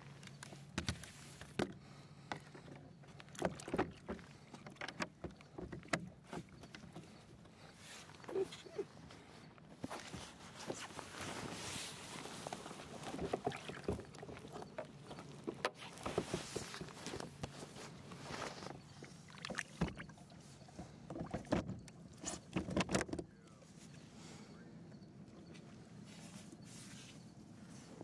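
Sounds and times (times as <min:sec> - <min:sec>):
boat knocks and clunks: 0:00.7 - 0:08.6, 0:12.3 - 0:23.5
water washing along hull: 0:11.6 - 0:17.4.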